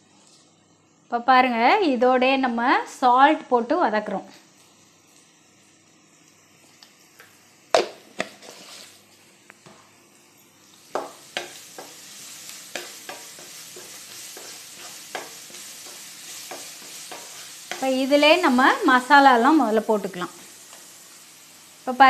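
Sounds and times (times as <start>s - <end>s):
onions sizzling in oil: 2.3s - 22.0s
spatula scraping frying pan: 7.8s - 9.1s, 11.0s - 18.5s.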